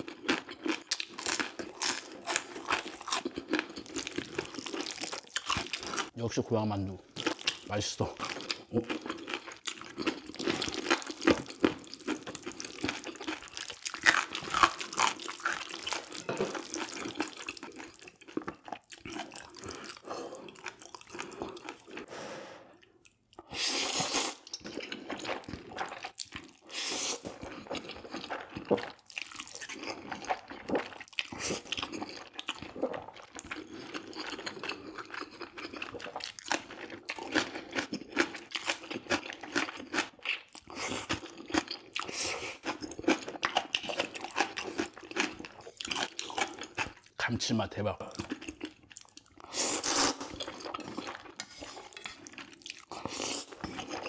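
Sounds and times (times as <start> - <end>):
wet chewing and smacking: 0.0 - 6.2, 7.1 - 22.1, 22.8 - 47.2, 48.0 - 54.0
slurping: 19.2 - 26.0, 49.4 - 54.0.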